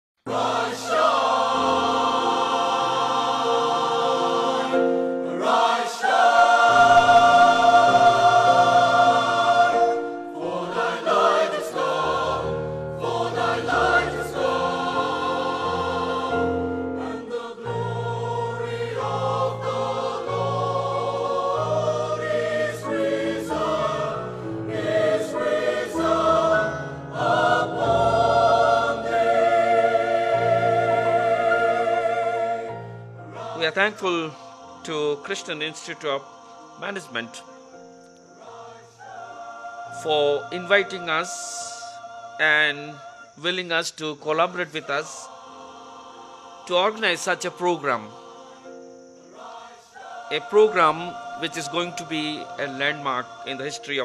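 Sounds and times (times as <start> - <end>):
choir singing: 0.3 - 54.0.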